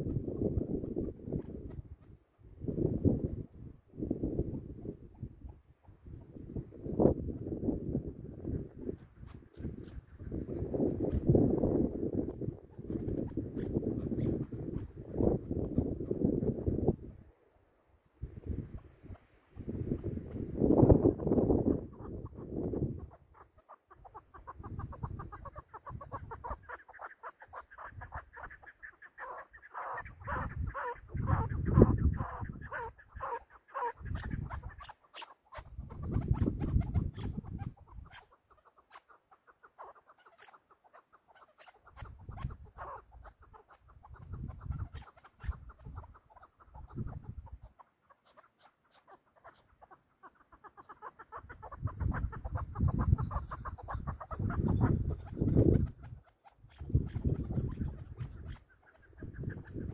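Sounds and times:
partridge clucking calls: 0.0s - 2.5s, 4.3s - 7.5s, 8.4s - 17.0s, 18.4s - 59.9s.

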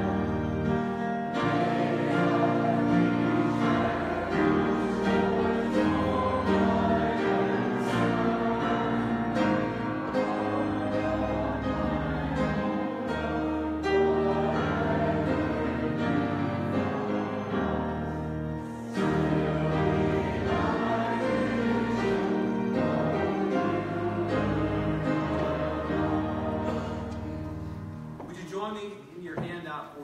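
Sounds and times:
slow music of sustained chords: 0.0s - 28.2s.

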